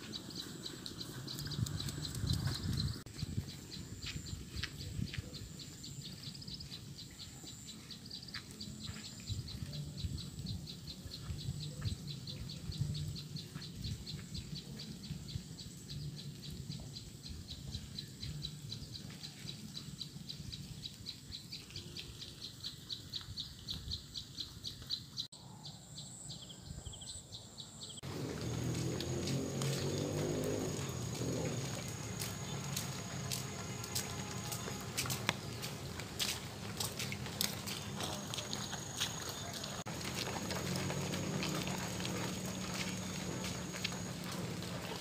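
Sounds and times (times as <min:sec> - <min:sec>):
low outdoor rumble: 0:28.0 - 0:45.0.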